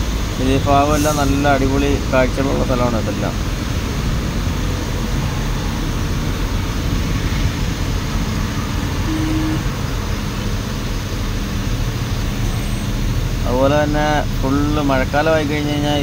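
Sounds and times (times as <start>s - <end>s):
road noise: 0.0s - 16.0s
truck diesel engine running: 1.4s - 16.0s
short faint tone: 9.1s - 9.7s.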